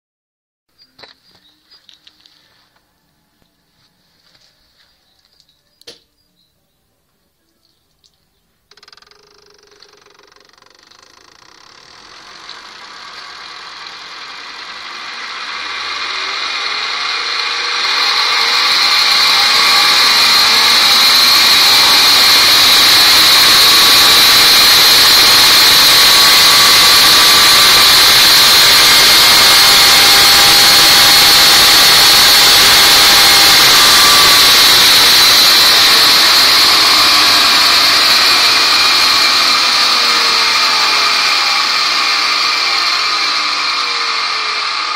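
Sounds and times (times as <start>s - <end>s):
electric motor whining: 8.7s - 44.9s
loud hiss: 10.8s - 43.7s.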